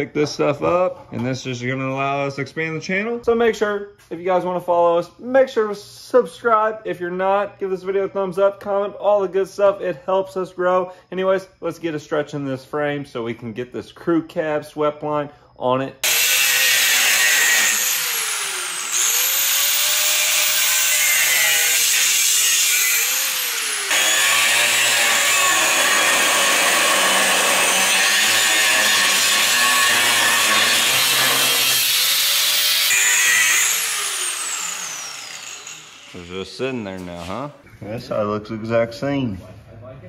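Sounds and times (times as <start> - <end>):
angle grinder cutting steel: 16.0 - 37.4.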